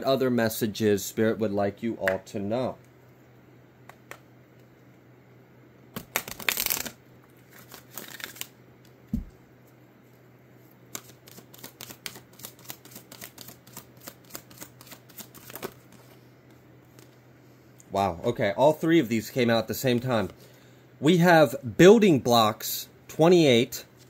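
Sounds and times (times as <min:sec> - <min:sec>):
cards rustling: 0:06.0 - 0:08.5, 0:10.9 - 0:16.2.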